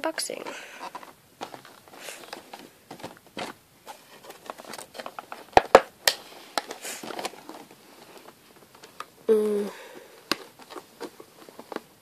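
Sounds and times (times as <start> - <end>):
cardboard box crinkling and scraping: 0.7 - 5.5, 6.2 - 8.8.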